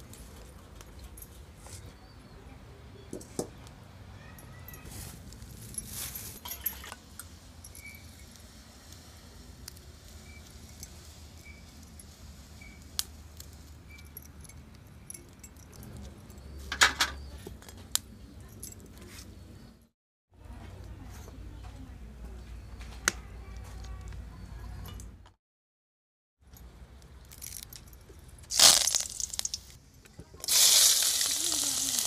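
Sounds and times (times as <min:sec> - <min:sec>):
utensils clattering: 0:05.6 - 0:07.0
utensils clinking on plates: 0:05.8 - 0:07.0.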